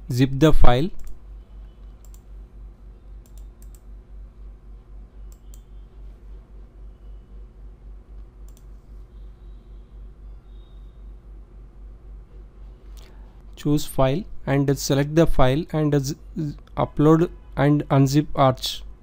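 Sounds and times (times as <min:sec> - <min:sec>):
faint pulsing hum: 0:00.0 - 0:19.0
computer mouse clicks: 0:01.0 - 0:02.3, 0:03.2 - 0:03.9, 0:08.4 - 0:08.8.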